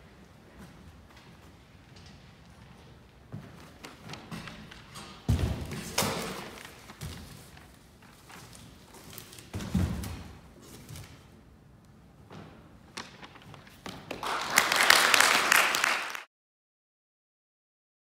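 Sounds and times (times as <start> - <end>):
small audience applauding: 14.0 - 16.3.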